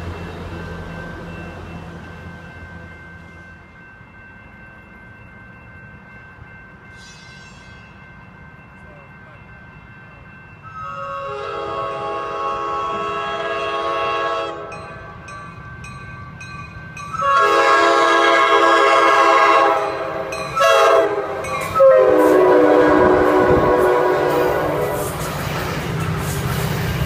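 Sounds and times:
train air horn blasts: 10.7s - 14.8s, 17.1s - 25.2s.

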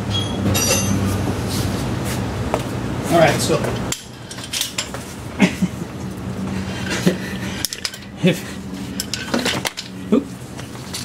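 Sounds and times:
hand tools clinking on metal: 0.1s - 1.1s, 7.6s - 8.2s, 9.0s - 10.0s.

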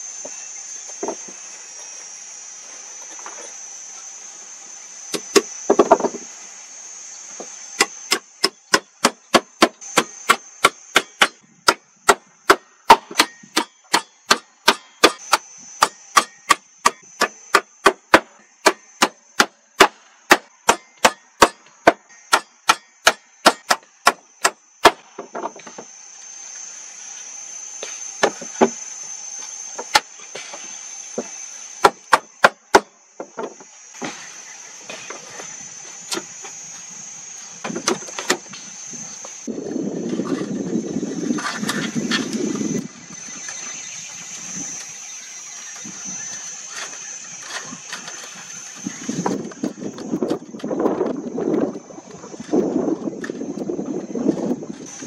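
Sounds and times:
insects buzzing: 0.0s - 55.0s
hand tool striking wood: 5.1s - 6.3s, 7.4s - 25.8s, 27.8s - 28.8s, 29.7s - 34.3s, 37.6s - 38.6s.

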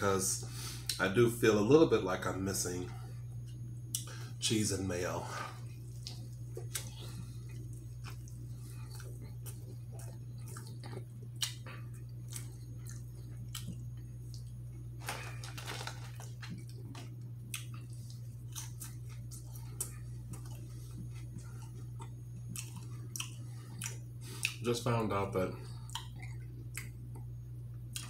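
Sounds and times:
steady low hum: 0.0s - 28.0s
man chewing: 5.6s - 24.6s, 25.7s - 28.0s.

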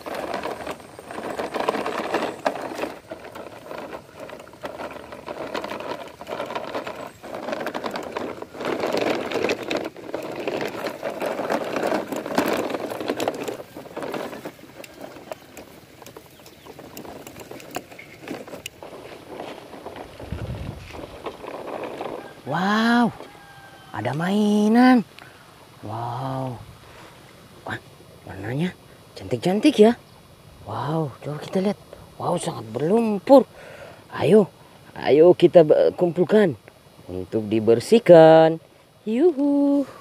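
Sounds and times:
toy trucks crunching through soil: 0.0s - 25.1s.

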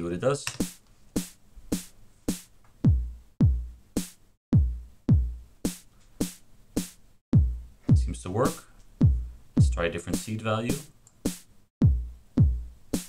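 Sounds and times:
deep kick drums: 2.8s - 3.8s, 4.5s - 5.5s, 7.3s - 8.3s, 9.0s - 9.8s, 11.8s - 12.8s.

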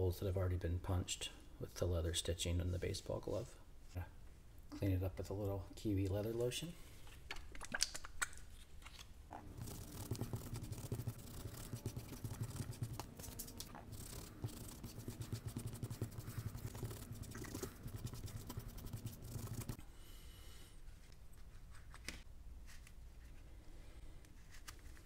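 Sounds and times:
cloth rag scrubbing leather: 9.5s - 19.8s.

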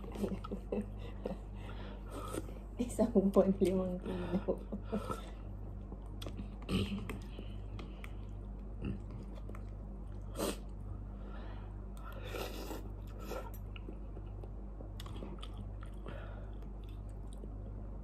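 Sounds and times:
steady low hum: 0.0s - 18.0s
person chewing noodles: 1.7s - 2.7s, 5.0s - 10.9s, 11.8s - 18.0s.

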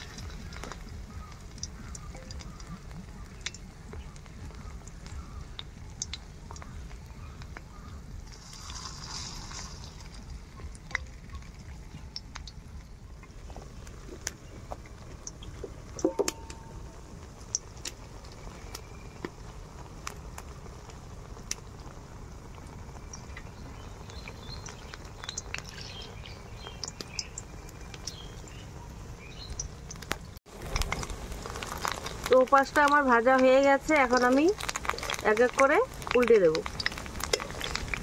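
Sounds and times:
oil sizzling: 0.0s - 38.0s
sharp pops and crackles: 0.0s - 38.0s.

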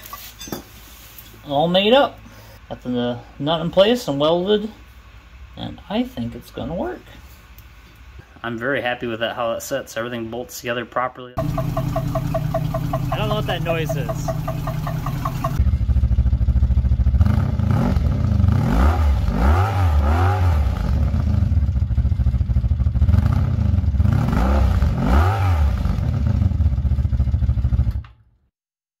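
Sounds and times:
motorcycle engine idling and revving: 11.4s - 28.3s.

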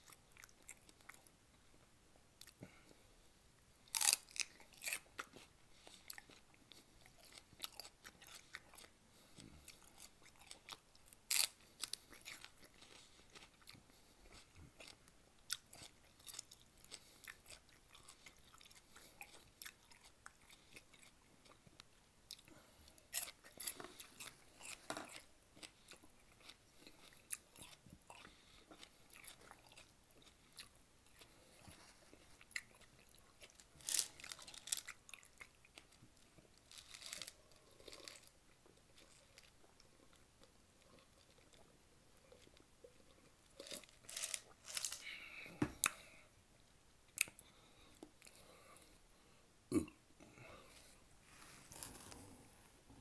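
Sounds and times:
wet crunches of chewing celery: 3.8s - 8.9s, 9.7s - 21.7s, 23.1s - 31.4s, 32.1s - 40.2s, 43.5s - 45.1s.

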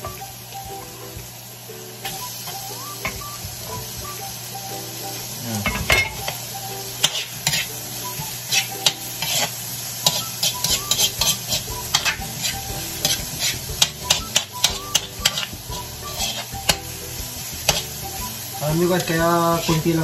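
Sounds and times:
onions sizzling in oil: 0.0s - 20.0s
spatula scraping and tapping pan: 7.0s - 16.9s, 17.5s - 18.2s.

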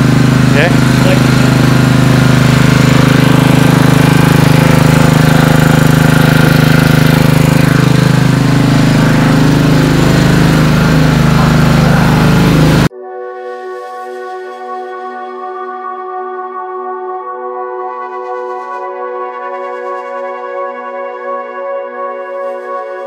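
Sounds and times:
generator engine humming: 0.0s - 12.9s.

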